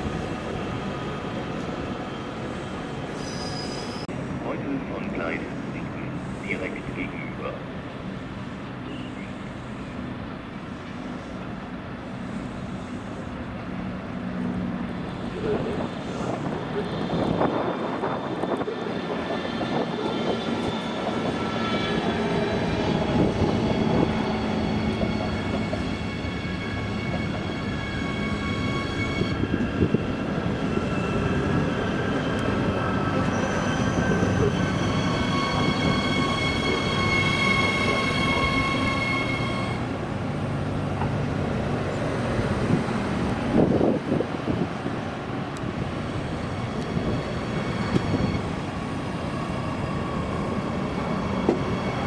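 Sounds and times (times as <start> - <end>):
train rumbling: 0.0 - 52.0
high squealing tones: 23.0 - 29.7, 30.5 - 39.8.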